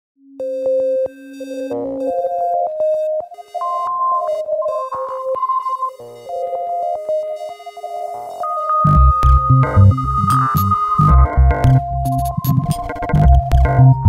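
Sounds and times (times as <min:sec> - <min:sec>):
synthesizer notes: 0:00.4 - 0:14.0
low held tone: 0:08.9 - 0:12.8.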